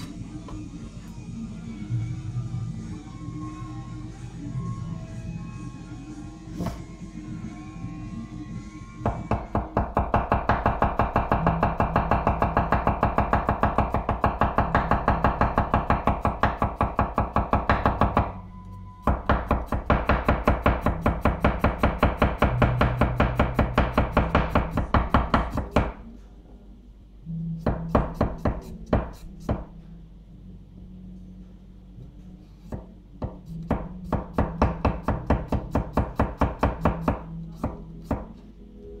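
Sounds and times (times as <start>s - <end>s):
knife chopping on wooden board: 32.7s - 38.3s.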